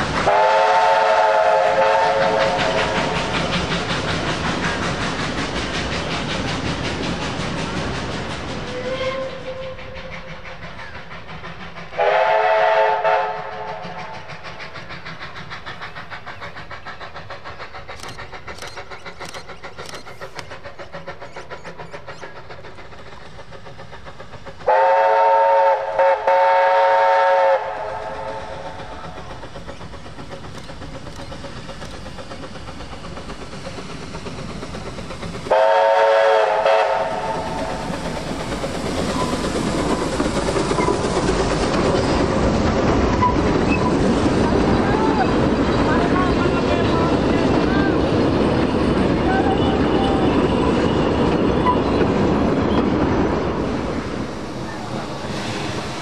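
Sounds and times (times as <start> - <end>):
rhythmic running of moving train: 0.0 - 56.0
steam whistle chord: 0.3 - 2.6, 12.0 - 13.6, 24.7 - 27.8, 35.5 - 37.4.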